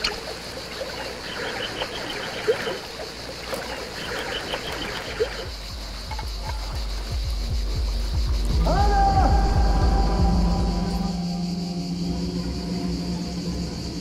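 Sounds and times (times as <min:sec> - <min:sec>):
water trickling: 0:00.0 - 0:08.5
low rumble: 0:05.5 - 0:14.0.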